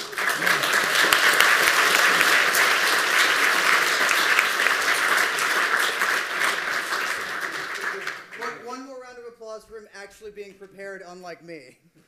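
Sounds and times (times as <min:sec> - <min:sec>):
audience applauding: 0:00.0 - 0:08.7.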